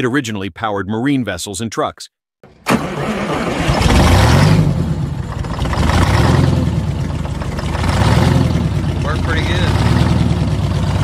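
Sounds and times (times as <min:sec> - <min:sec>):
diesel engine revving: 0:02.5 - 0:11.0.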